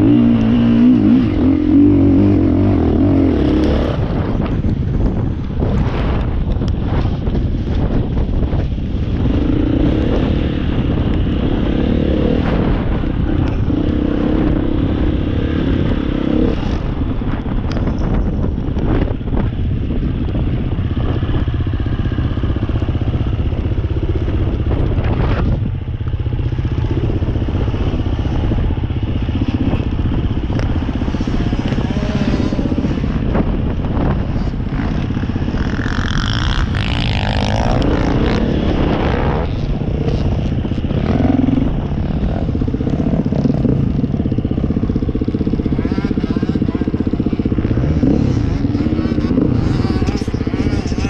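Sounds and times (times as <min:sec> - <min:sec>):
dirt bike engine revving: 0:00.0 - 0:04.7, 0:21.0 - 0:51.0.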